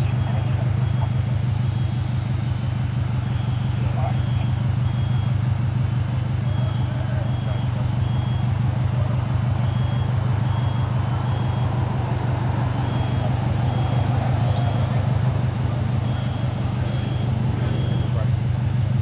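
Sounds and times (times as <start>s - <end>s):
car engine idling: 0.0s - 19.0s
short high electronic beeps: 16.0s - 18.3s.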